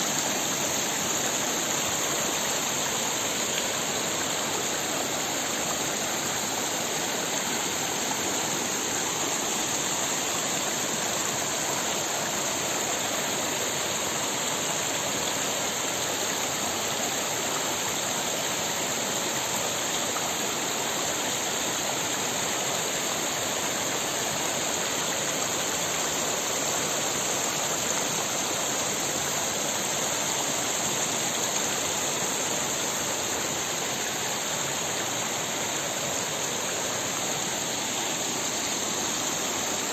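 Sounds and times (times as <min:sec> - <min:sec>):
stream flowing over rocks: 0:00.0 - 0:39.9.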